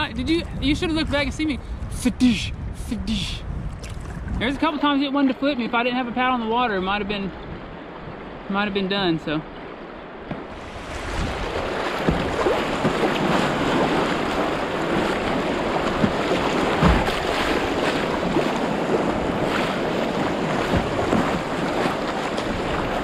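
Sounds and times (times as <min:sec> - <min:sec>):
wind buffeting microphone: 0:00.0 - 0:23.0
river water rushing and splashing: 0:03.8 - 0:23.0
thump: 0:16.8 - 0:17.1.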